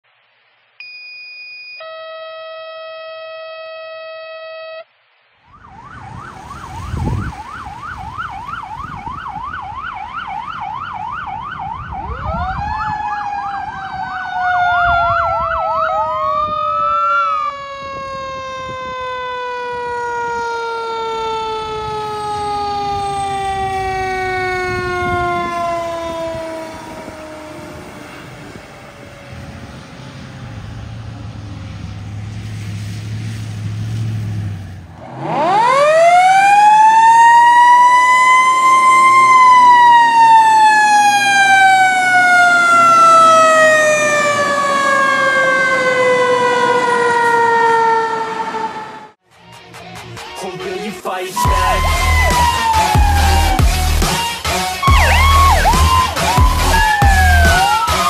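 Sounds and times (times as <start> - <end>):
electronic siren yelping: 0.8 - 4.9, 5.5 - 29.6, 35.0 - 49.2, 51.4 - 58.0
steady electronic tones: 51.4 - 58.0.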